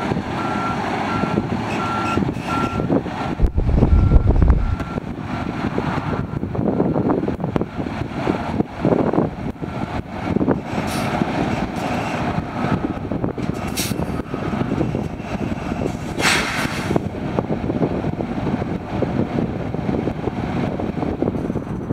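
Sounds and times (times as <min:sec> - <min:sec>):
heavy truck idling: 0:00.3 - 0:10.5
wind on microphone: 0:02.5 - 0:11.4, 0:12.3 - 0:21.9.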